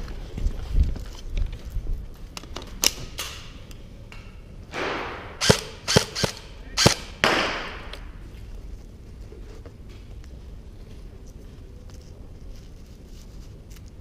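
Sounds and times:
airsoft gunshots: 4.7s - 7.9s.

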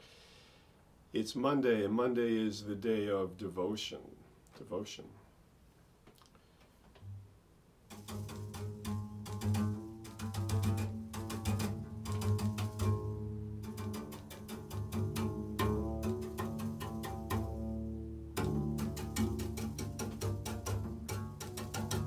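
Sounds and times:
bowed double bass: 7.0s - 22.0s.

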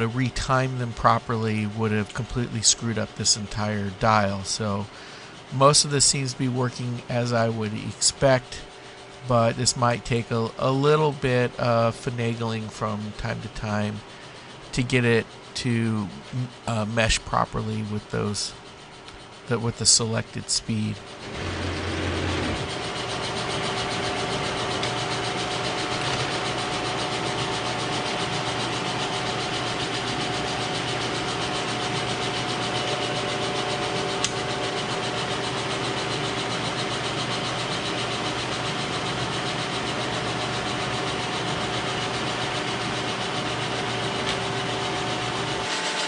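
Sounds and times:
milling machine running: 20.8s - 46.0s
sharp click: 34.2s - 34.4s.

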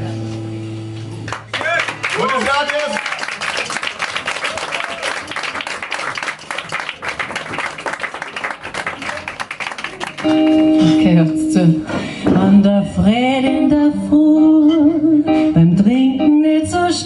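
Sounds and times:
audience applauding: 1.2s - 10.7s.

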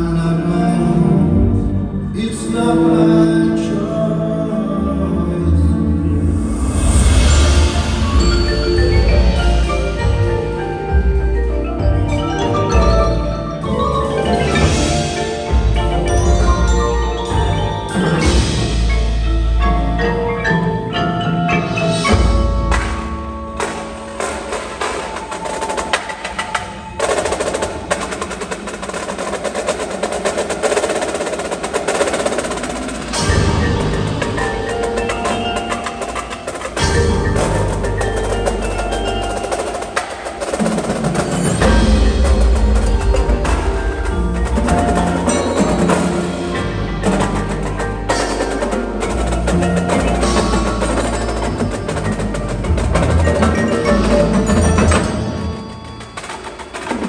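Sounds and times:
mallet percussion: 4.5s - 57.0s
drumline playing: 6.2s - 57.0s
snare drum roll: 22.7s - 55.4s.

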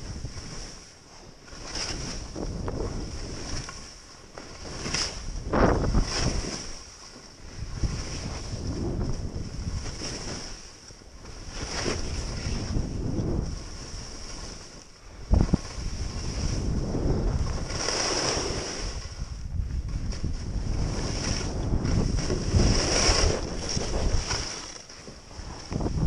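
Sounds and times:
wind buffeting microphone: 1.9s - 3.8s, 4.6s - 6.8s, 7.4s - 26.0s
skis hissing through snow: 11.5s - 14.8s, 15.6s - 19.2s, 20.7s - 25.7s.

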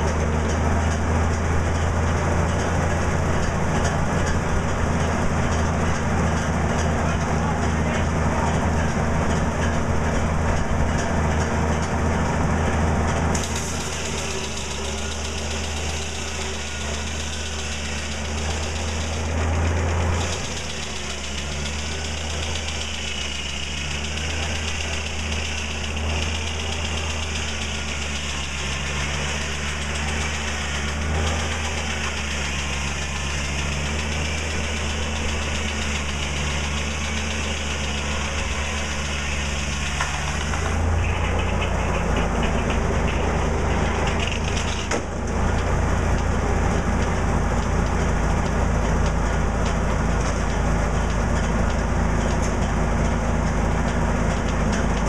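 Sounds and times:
machinery droning: 0.0s - 55.0s
saw blade cutting wood: 13.3s - 47.2s.

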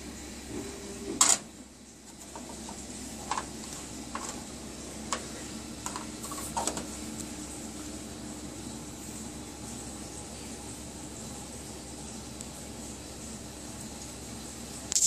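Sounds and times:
cabinet fan humming: 0.0s - 15.0s
plastic dishes clicking: 5.1s - 6.9s.

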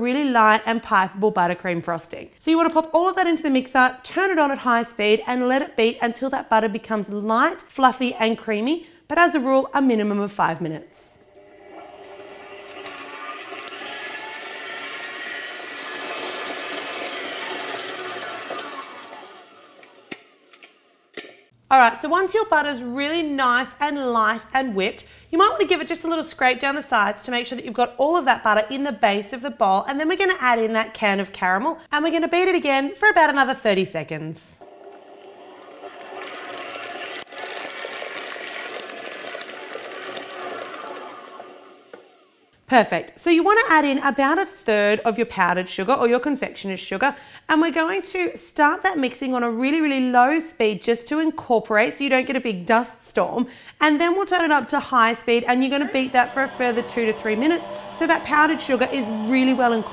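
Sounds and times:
stand mixer beating butter: 11.3s - 20.9s, 34.6s - 42.5s, 55.9s - 59.9s.

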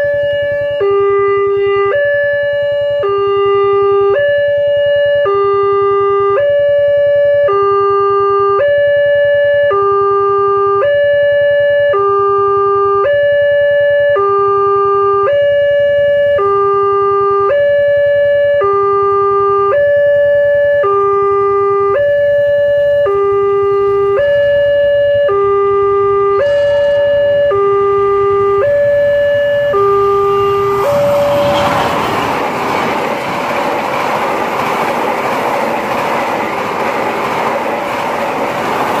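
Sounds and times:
two-tone crossing alarm chime: 0.0s - 31.8s
train rushing past: 26.0s - 39.0s.

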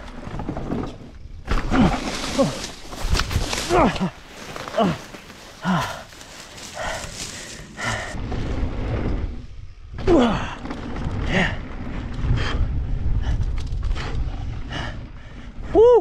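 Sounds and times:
wind rumble on camera: 0.0s - 5.4s, 6.0s - 16.0s
bike tyres on dirt trail: 0.0s - 16.0s
brush rustling: 1.5s - 8.2s
rider breathing or grunting: 1.6s - 9.3s, 10.0s - 15.8s.

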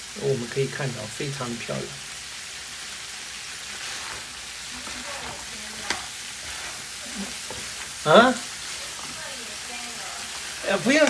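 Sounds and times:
crab sizzling in a frying pan: 0.0s - 11.0s
wooden spatula stirring: 3.7s - 11.0s.

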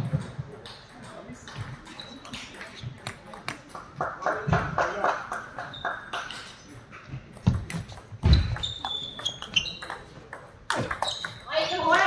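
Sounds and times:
short high squeaks: 8.3s - 10.0s, 11.0s - 11.8s.

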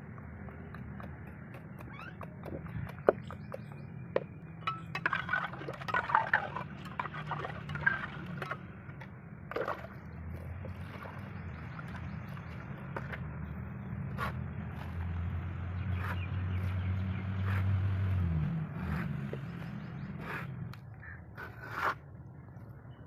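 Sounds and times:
tools clinking and knocking: 4.2s - 8.6s
trowel scraping wet cement: 4.6s - 8.6s, 14.1s - 15.0s, 21.3s - 22.1s.

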